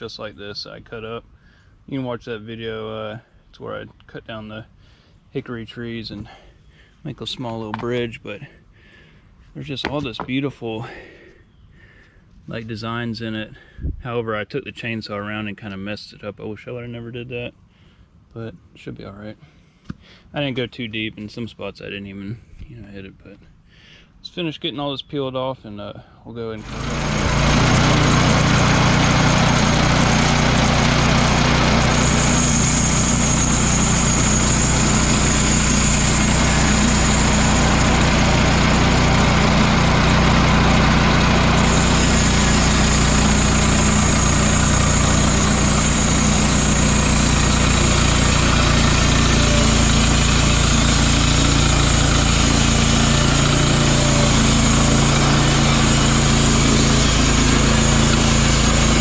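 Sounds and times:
band blade sawing log: 0:26.6 - 0:59.0
gas engine running: 0:26.6 - 0:59.0.

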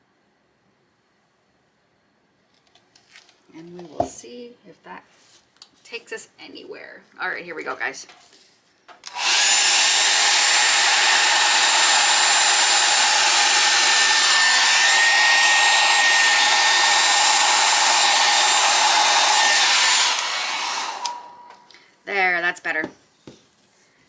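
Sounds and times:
hair dryer running: 0:09.0 - 0:21.8.

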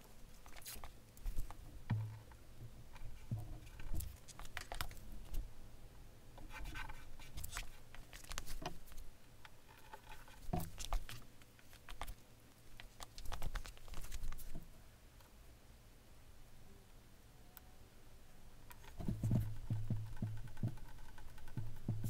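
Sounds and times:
masking tape handling clicks and crinkles: 0:00.4 - 0:02.2, 0:03.7 - 0:05.4, 0:07.3 - 0:09.1, 0:10.1 - 0:14.6.

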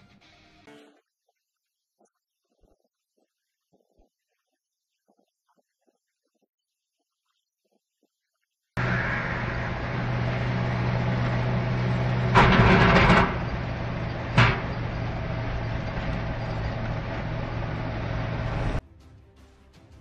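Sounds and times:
loud noisy burst: 0:08.8 - 0:18.8
road noise: 0:08.8 - 0:18.8
vehicle engine hum: 0:08.8 - 0:18.8.

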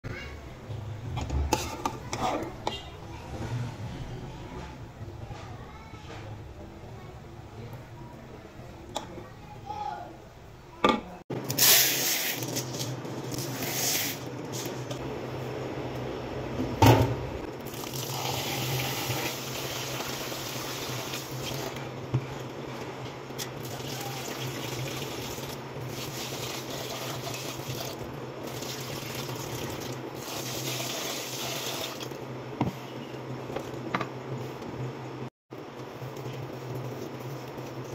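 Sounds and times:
plastic bowl rinsed by hand: 0:23.4 - 0:32.2.

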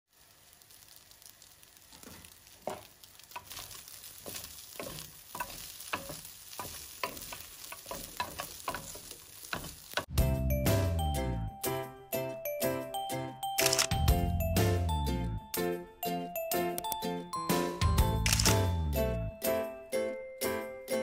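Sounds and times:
rice sizzling in a pan: 0:00.1 - 0:10.1
wooden spatulas scraping metal pan: 0:03.4 - 0:10.0.

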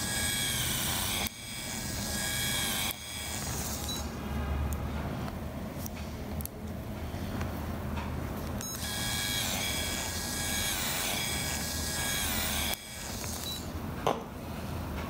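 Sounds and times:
dental motor high whine: 0:00.0 - 0:04.2, 0:08.6 - 0:13.7.

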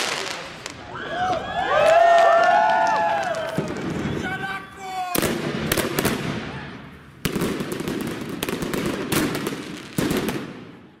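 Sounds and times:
sharp firework bangs: 0:05.1 - 0:10.8.

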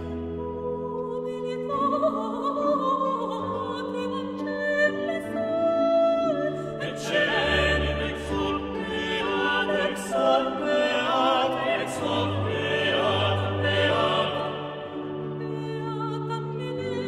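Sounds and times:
operatic voice singing: 0:06.7 - 0:17.0.

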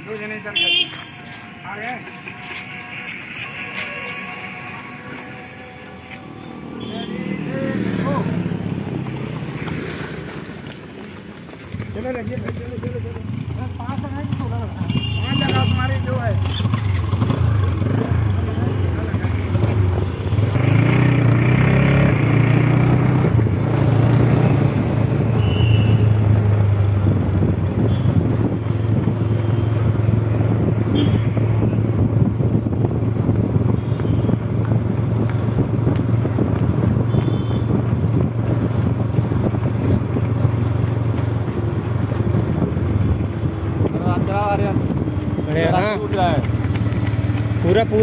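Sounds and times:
motorcycle engine running: 0:11.7 - 0:25.2
wind rumble on microphone: 0:22.2 - 0:48.0.

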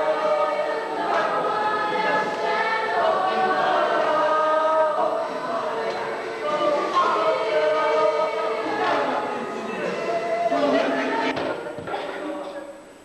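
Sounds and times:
group of voices singing: 0:00.0 - 0:11.7.

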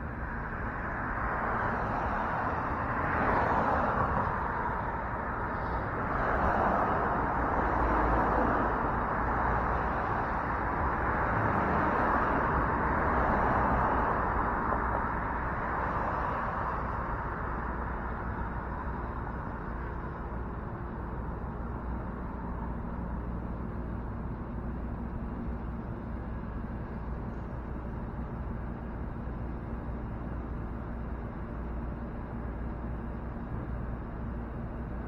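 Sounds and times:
low traffic rumble: 0:00.0 - 0:35.0
passing cars humming: 0:00.0 - 0:35.0.

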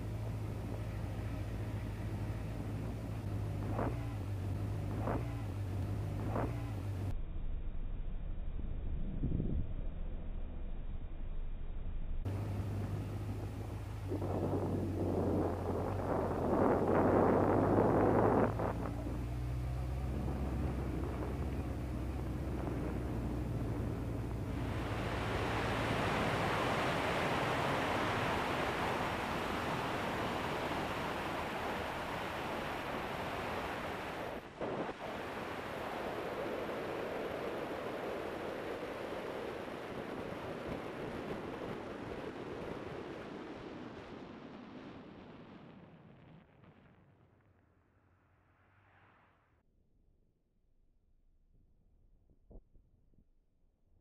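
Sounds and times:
wind noise on microphone: 0:00.0 - 0:06.7, 0:08.6 - 0:10.4, 0:12.3 - 0:44.3
motorcycle engine at low revs: 0:00.0 - 0:42.6.

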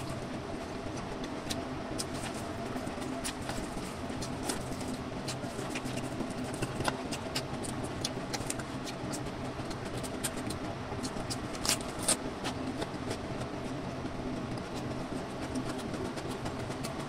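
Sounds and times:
low steady hum: 0:00.0 - 0:17.0
lettuce crunching: 0:00.9 - 0:13.2
chewing and mouth sounds: 0:00.9 - 0:17.0.

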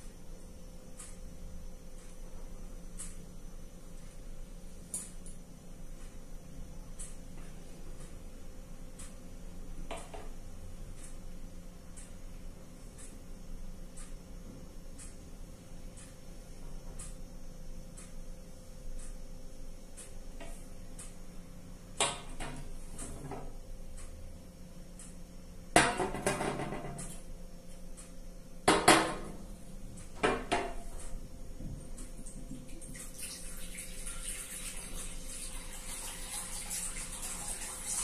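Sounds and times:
water pouring into glass bowl: 0:32.7 - 0:38.0.

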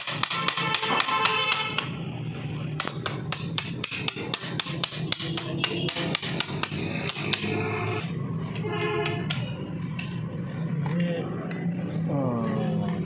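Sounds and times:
hammer tapping steel punch: 0:00.0 - 0:02.0, 0:02.8 - 0:10.2.

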